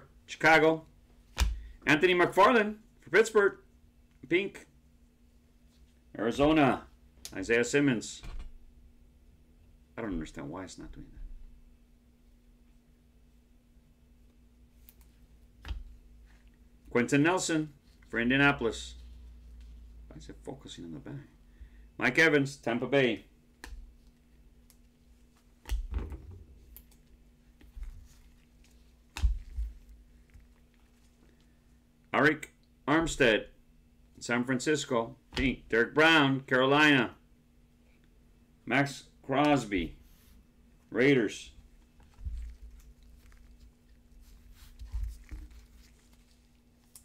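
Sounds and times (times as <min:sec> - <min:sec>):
cards in plastic sleeves rustling: 0:41.6 - 0:47.0.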